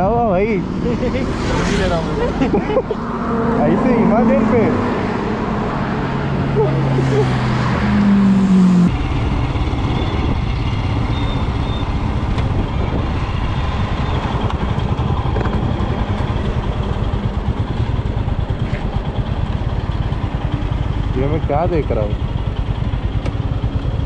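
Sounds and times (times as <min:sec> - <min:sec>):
motorcycle engine running: 0:00.0 - 0:24.0
wind noise on microphone: 0:08.9 - 0:16.4.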